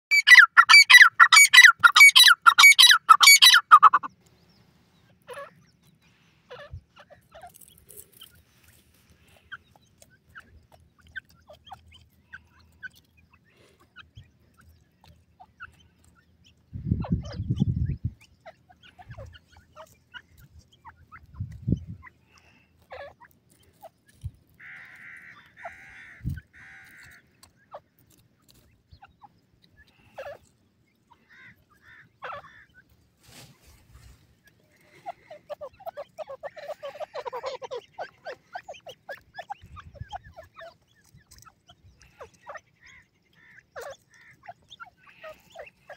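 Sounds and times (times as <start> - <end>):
francolin calling harsh notes: 0.1 - 4.1.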